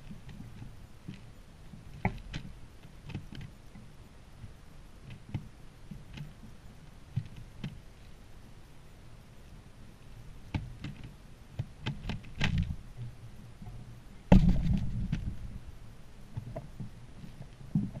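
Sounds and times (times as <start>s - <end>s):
birds pecking on wooden feeder: 0.0s - 7.8s, 10.5s - 12.8s
loud thump: 14.3s - 15.4s.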